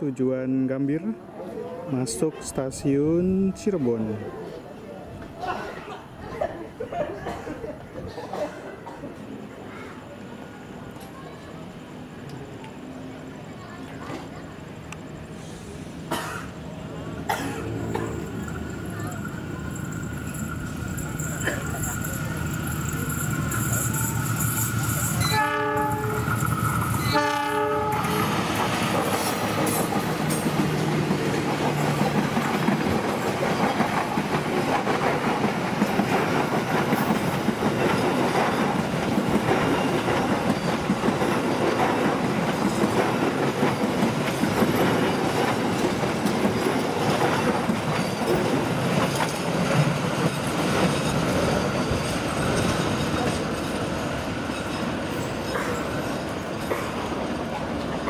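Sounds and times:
train wheels clacking over rail joints: 0:20.0 - 0:57.9
locomotive horn blasts: 0:25.2 - 0:26.3, 0:27.0 - 0:28.4.

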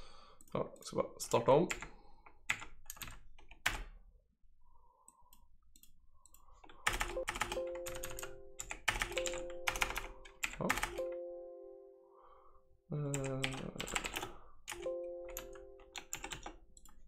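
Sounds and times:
keyboard typing: 0:02.5 - 0:03.9, 0:05.7 - 0:11.3, 0:13.1 - 0:17.0
steady chord-like tone: 0:11.0 - 0:12.6, 0:14.8 - 0:15.9.

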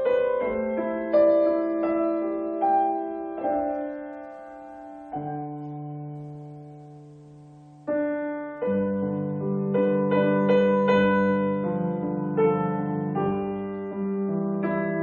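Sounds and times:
gentle solo piano: 0:00.0 - 0:15.0.

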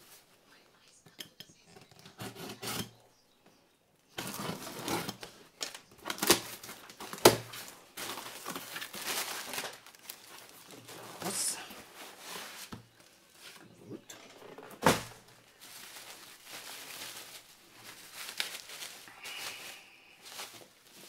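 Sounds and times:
packing tape tearing: 0:04.2 - 0:11.4
plastic packing crinkling: 0:04.2 - 0:21.0.

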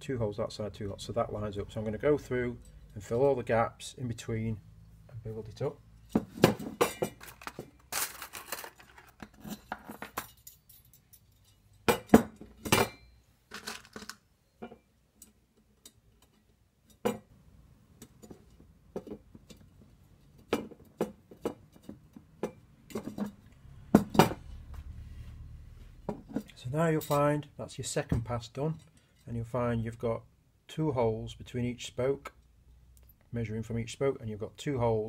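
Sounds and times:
metal spokes clinking: 0:06.0 - 0:13.2.

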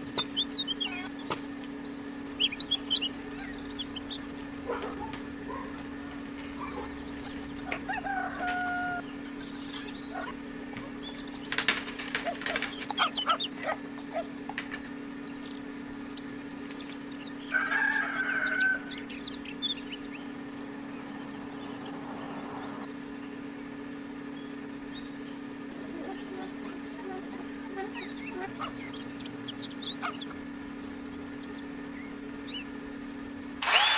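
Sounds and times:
short pitched calls: 0:00.0 - 0:22.9, 0:24.9 - 0:32.7
chirps and clicks: 0:00.0 - 0:32.8
low hum: 0:00.0 - 0:33.9
chickens clucking: 0:02.4 - 0:20.8, 0:25.7 - 0:30.6.

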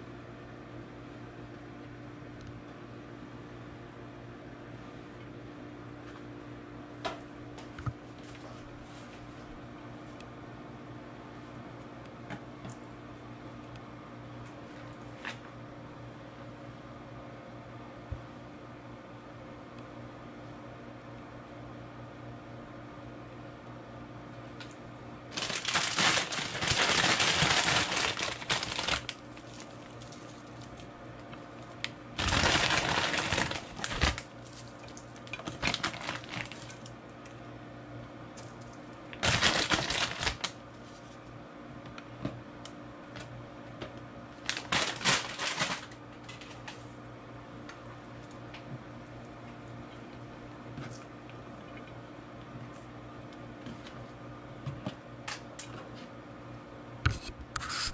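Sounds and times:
crinkling packaging and cracklings: 0:24.6 - 0:37.4, 0:38.4 - 0:41.3, 0:44.3 - 0:47.0.

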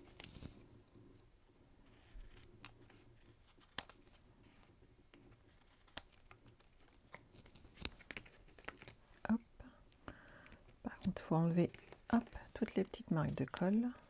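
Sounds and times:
scissors snipping paper: 0:02.2 - 0:04.2, 0:05.1 - 0:09.0, 0:11.7 - 0:14.0.

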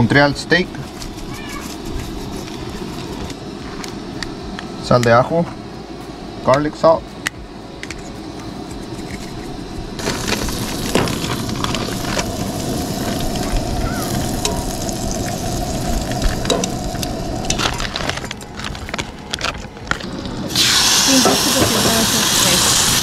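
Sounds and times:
steady hum: 0:00.0 - 0:23.0
butter sizzling in a skillet: 0:10.0 - 0:17.8, 0:20.5 - 0:23.0.

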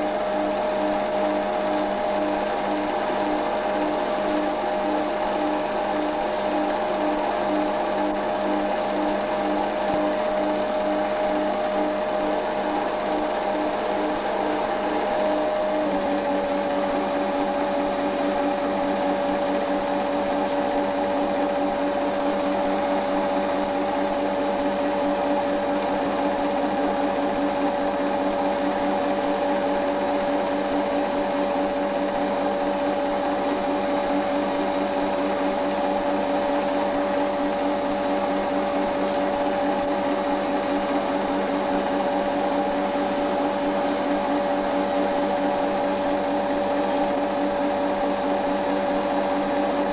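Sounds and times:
film projector whirring: 0:00.0 - 0:49.9.

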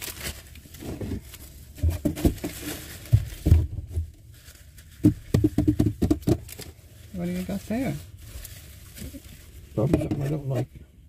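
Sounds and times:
knocks and clicks of handling: 0:05.0 - 0:06.7.

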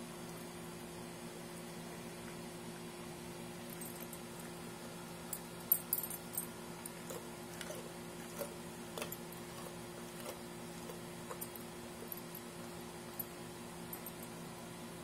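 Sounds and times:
metal collar tags jingling: 0:05.7 - 0:06.5
puppy chewing wet crunches: 0:06.8 - 0:12.6.

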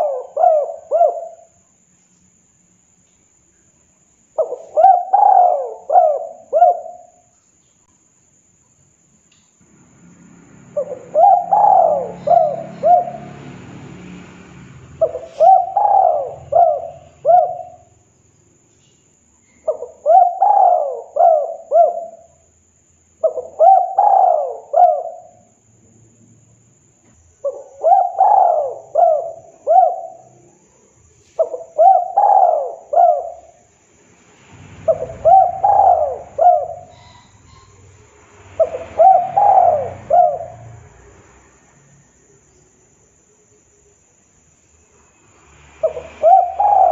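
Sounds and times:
dove cooing: 0:00.0 - 0:01.6, 0:04.4 - 0:07.2, 0:10.7 - 0:13.5, 0:15.0 - 0:18.0, 0:19.6 - 0:22.4, 0:23.2 - 0:25.4, 0:27.4 - 0:30.4, 0:31.3 - 0:33.6, 0:34.9 - 0:37.9, 0:38.6 - 0:40.8, 0:45.8 - 0:46.9.

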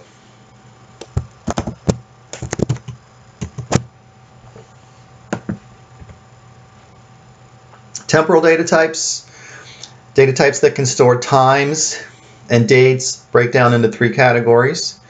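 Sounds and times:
computer mouse and keyboard clicks: 0:01.0 - 0:03.9.

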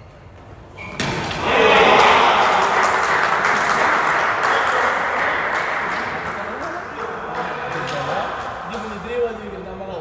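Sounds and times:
crowd cheering and applause: 0:01.4 - 0:07.9.

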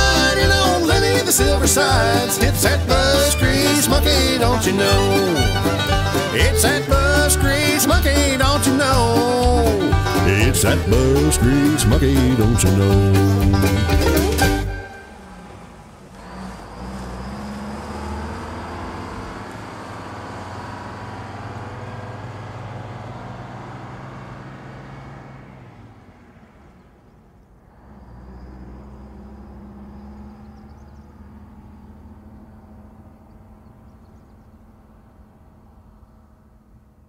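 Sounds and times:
diesel bus engine: 0:00.0 - 0:37.0
road noise: 0:00.0 - 0:37.0.

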